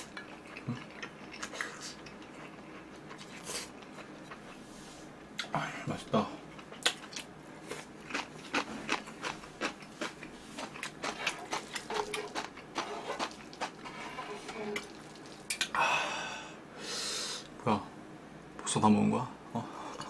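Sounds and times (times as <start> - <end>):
chewing and mouth smacking: 0.0 - 4.6, 6.5 - 14.0, 14.7 - 15.8.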